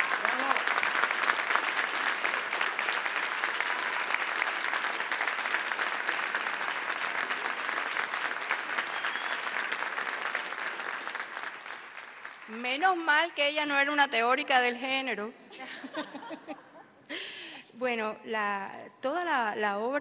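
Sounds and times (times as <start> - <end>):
audience applauding: 0.0 - 13.4.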